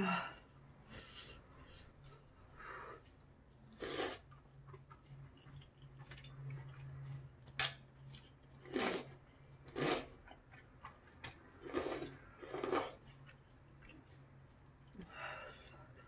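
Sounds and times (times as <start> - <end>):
noodles being slurped: 8.6 - 10.2, 11.2 - 13.0.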